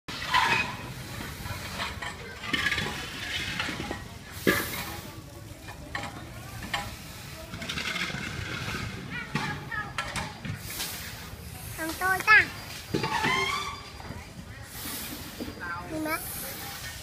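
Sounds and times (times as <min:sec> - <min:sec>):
gas hissing from hoses: 0:00.2 - 0:02.1, 0:02.8 - 0:05.8, 0:06.4 - 0:07.8, 0:10.3 - 0:17.0.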